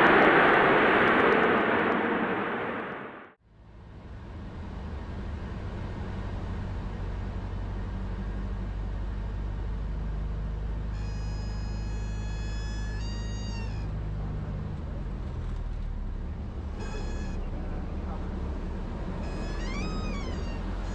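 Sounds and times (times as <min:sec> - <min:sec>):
propeller plane engine droning: 0:00.0 - 0:20.9
stall warning horn wailing: 0:10.9 - 0:14.5, 0:16.6 - 0:18.2, 0:19.0 - 0:20.9.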